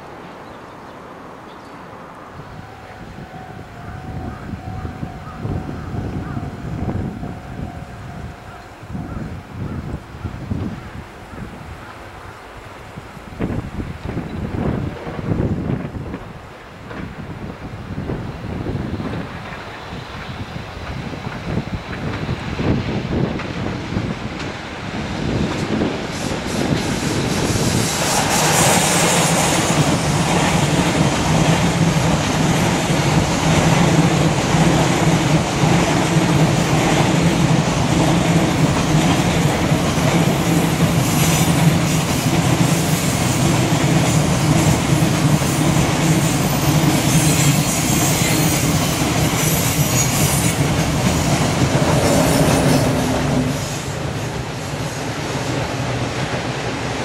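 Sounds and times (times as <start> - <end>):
freight train wheels clattering: 18.7 - 57.0
wheel flange squeal: 46.3 - 54.0.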